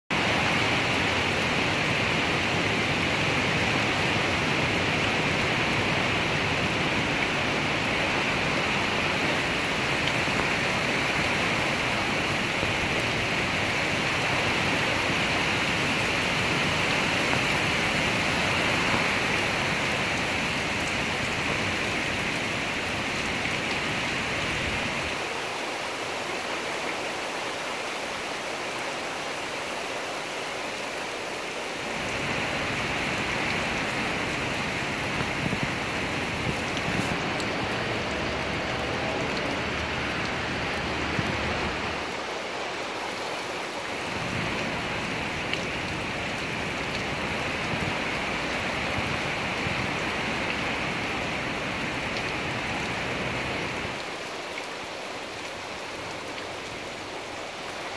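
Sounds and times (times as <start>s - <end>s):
wind rushing through trees: 0.1s - 57.9s
wind rumble on microphone: 32.0s - 42.0s, 44.0s - 51.3s.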